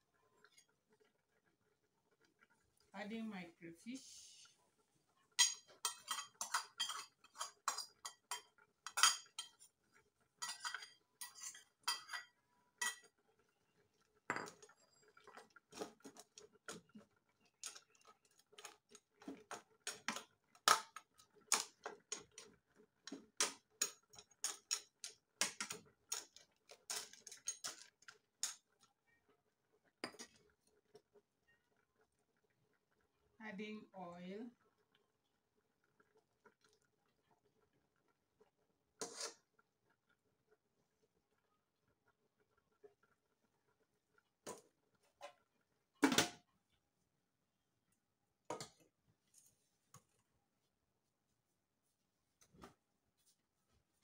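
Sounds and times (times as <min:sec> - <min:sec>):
spoon knocking and scraping pot: 0:05.4 - 0:09.8, 0:10.4 - 0:13.2, 0:14.3 - 0:17.0, 0:17.6 - 0:28.7, 0:30.0 - 0:30.5, 0:39.0 - 0:39.5.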